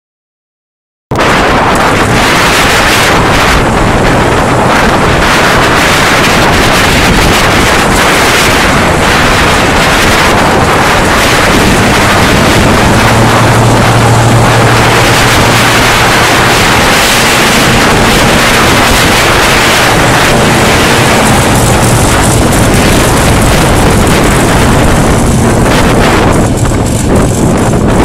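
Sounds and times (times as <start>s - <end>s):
low hum: 1.1s - 28.0s
wind noise on microphone: 1.1s - 28.0s
lawn mower engine running: 1.5s - 28.0s.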